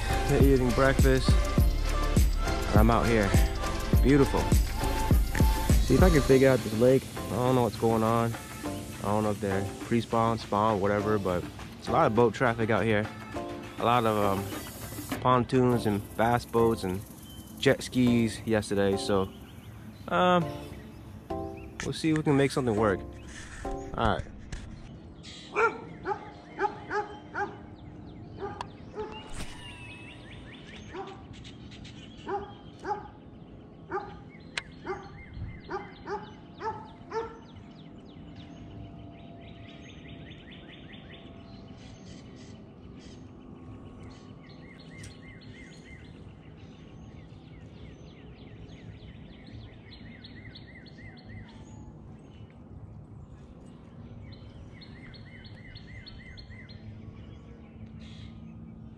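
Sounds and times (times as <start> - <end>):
birds chirping: 0.0 - 58.9
dog barking: 25.5 - 27.7, 28.4 - 29.2, 30.9 - 31.3, 32.2 - 33.2, 33.9 - 34.2, 34.8 - 37.5.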